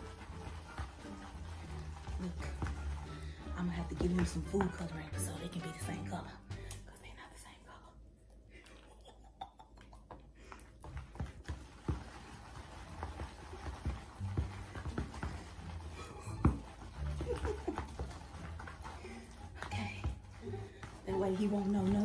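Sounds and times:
utensil scraping plastic tub: 0.0s - 5.9s, 11.4s - 22.0s.

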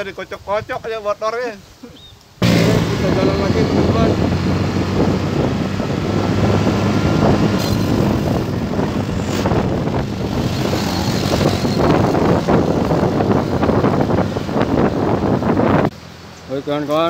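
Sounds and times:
motorcycle engine: 2.4s - 15.9s
wind buffeting microphone: 2.4s - 16.0s
road rumble: 2.4s - 17.0s.

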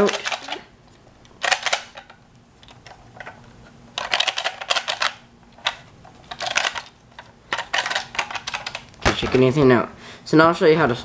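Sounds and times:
plastic bricks rattling in box: 0.0s - 0.7s, 4.0s - 9.5s.

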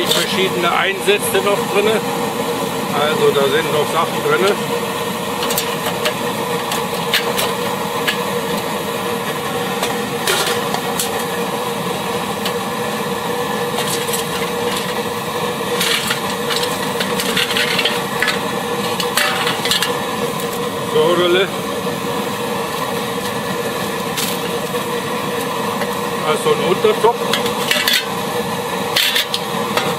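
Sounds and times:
pressure burner humming: 0.0s - 29.9s
metal pots clattering: 5.4s - 8.6s, 9.2s - 11.3s, 13.7s - 20.6s, 27.2s - 28.2s, 28.9s - 29.9s.

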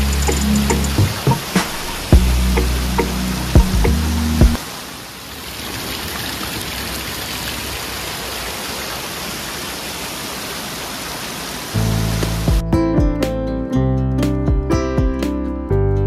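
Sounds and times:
water falling and splashing: 0.0s - 12.7s.

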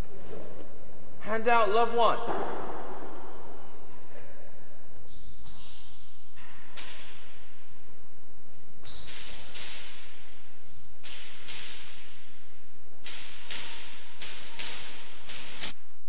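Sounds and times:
shoes squeaking on floor: 5.0s - 6.7s, 8.8s - 12.3s.

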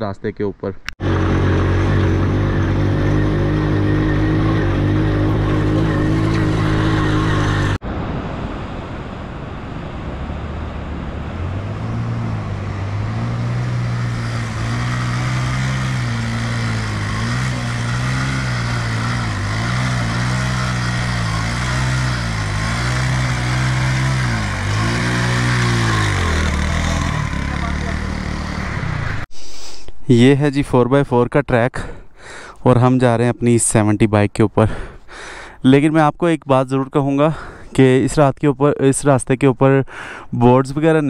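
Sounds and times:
small motorcycle engine revving: 1.0s - 7.8s, 10.6s - 29.3s.

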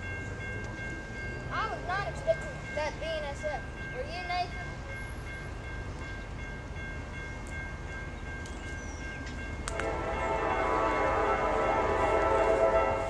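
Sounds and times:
crossing warning bell ringing: 0.0s - 13.0s
locomotive air horn: 9.7s - 13.0s.

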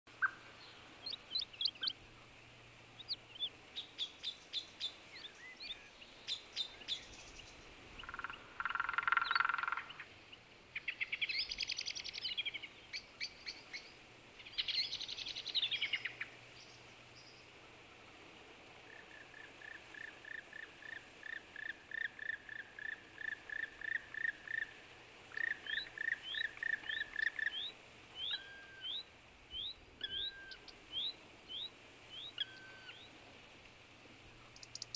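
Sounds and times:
songbirds singing: 0.1s - 17.6s, 18.8s - 33.3s, 34.2s - 34.9s
rapid repeated bird notes: 34.4s - 34.9s.

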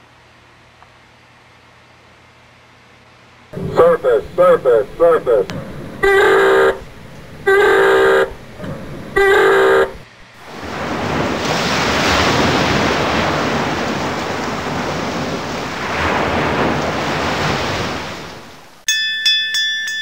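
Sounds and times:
short horn blast: 3.6s - 10.1s.

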